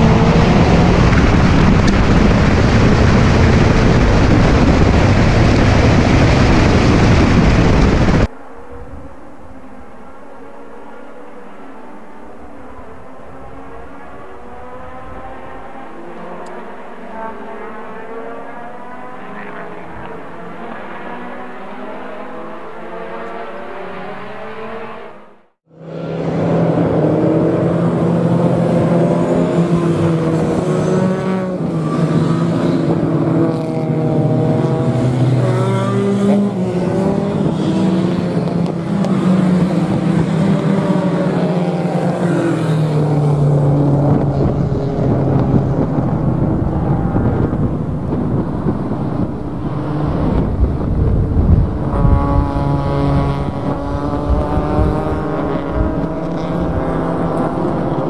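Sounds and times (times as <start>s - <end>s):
heavy low rumble: 0.0s - 8.3s
race car engine revving: 0.0s - 8.3s, 12.7s - 58.0s.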